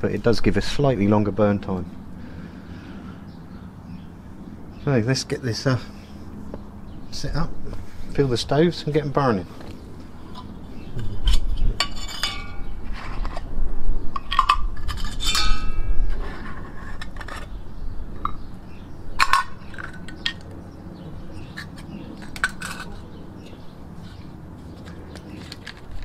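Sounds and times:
metal clinks and scrapes on stone: 10.3 - 13.5, 14.2 - 17.5, 21.5 - 23.6.

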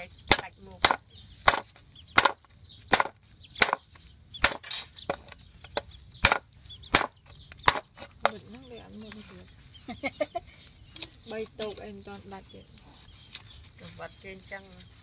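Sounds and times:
knife chopping on wooden board: 0.3 - 8.0.

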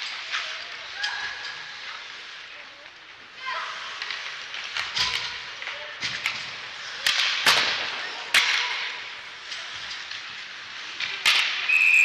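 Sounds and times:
hockey stick cracking on puck: 4.0 - 10.4, 11.0 - 11.7.

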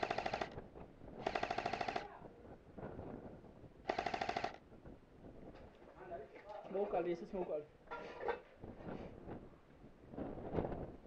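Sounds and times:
airsoft rifle bursts: 0.0 - 0.6, 1.2 - 2.0, 3.9 - 4.6.

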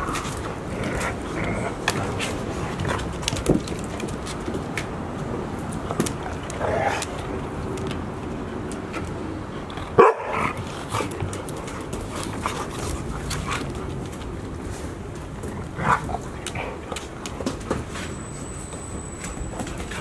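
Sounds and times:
dogs play-fighting vocalizing: 0.0 - 3.4, 9.6 - 14.4
dog barking: 10.0 - 10.4.

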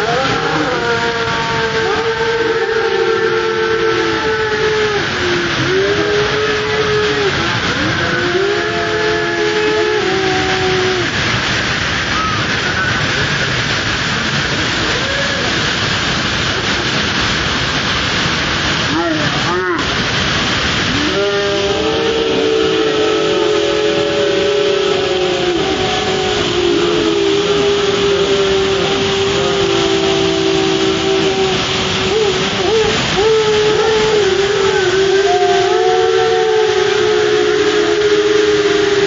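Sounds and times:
people shouting: 0.0 - 11.2, 20.9 - 39.0
waterfall rushing over rocks: 0.0 - 39.0.

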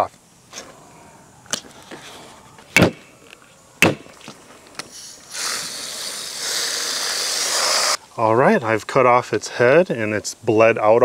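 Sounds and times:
hose spray nozzle hissing: 4.8 - 8.0.

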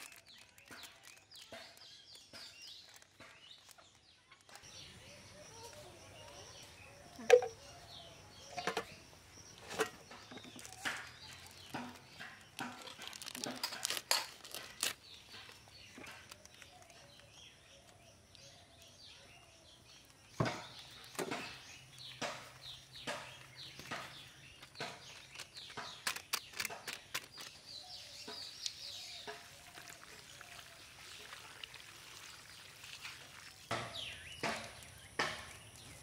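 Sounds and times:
spoon clicks and taps: 7.2 - 7.6
food mixed by hand: 8.5 - 35.0.

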